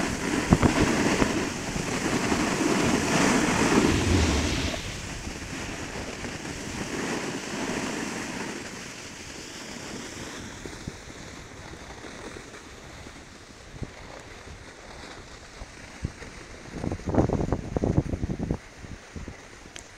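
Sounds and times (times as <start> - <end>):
wind rushing over microphone: 3.3 - 5.8
skis sliding on snow: 3.6 - 5.1.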